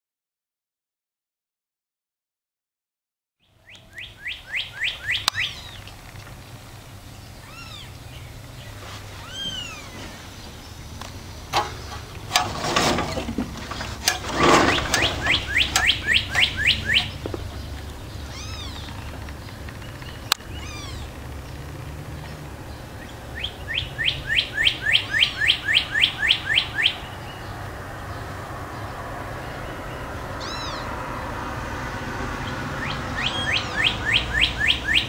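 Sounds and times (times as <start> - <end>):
kitten mewing: 7.4 - 7.9, 9.2 - 10.0, 18.3 - 18.9, 20.5 - 21.1, 30.4 - 30.9
rustling: 8.5 - 21.4.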